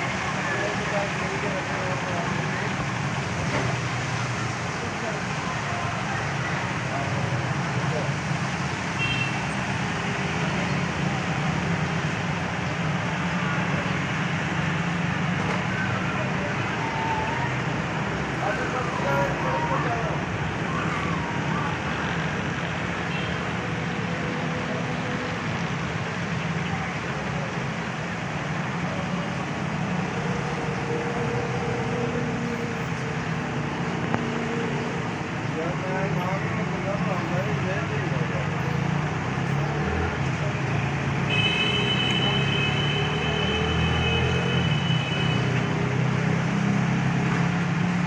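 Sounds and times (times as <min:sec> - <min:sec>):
tyres hissing on wet road: 0:00.0 - 0:42.0
heavy rain: 0:00.0 - 0:42.4.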